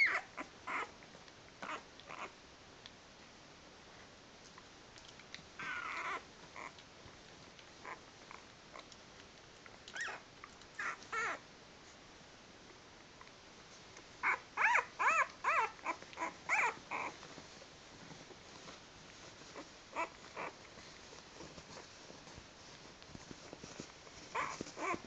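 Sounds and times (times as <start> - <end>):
puppies whimpering and squeaking: 0.0 - 0.9, 5.6 - 6.8, 9.9 - 11.4, 14.2 - 17.2, 19.4 - 20.7, 24.2 - 25.0.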